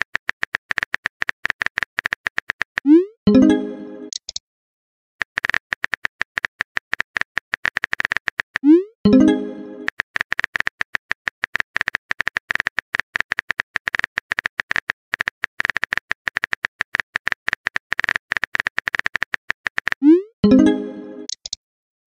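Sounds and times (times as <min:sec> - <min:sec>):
keyboard click ticks: 0:21.3 - 0:21.6.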